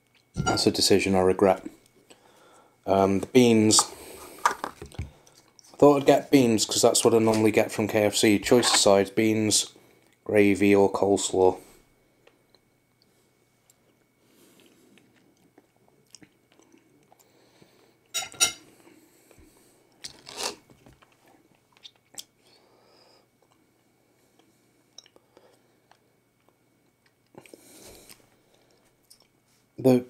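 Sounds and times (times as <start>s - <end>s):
person chewing food: 12.2s - 18.1s, 18.8s - 22.5s, 23.4s - 29.4s.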